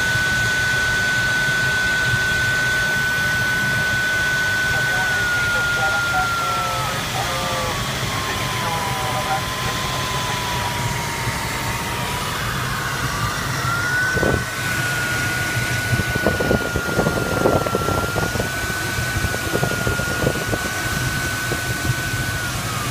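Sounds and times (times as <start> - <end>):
variometer steady tone: 0.0 - 22.9
airflow rush: 9.5 - 22.9.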